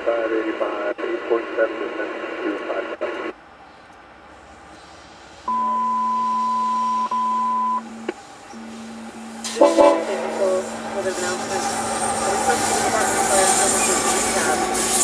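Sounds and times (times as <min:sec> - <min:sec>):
voice speaking: 0:00.0 - 0:03.3, 0:09.6 - 0:14.7
low steady hum: 0:05.5 - 0:11.8
radio beep tone: 0:05.5 - 0:14.5.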